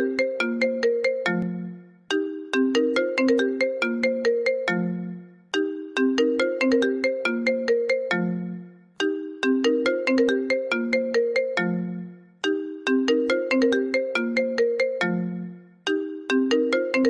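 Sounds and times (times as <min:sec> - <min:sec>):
phone ringtone melody: 0:00.0 - 0:17.0.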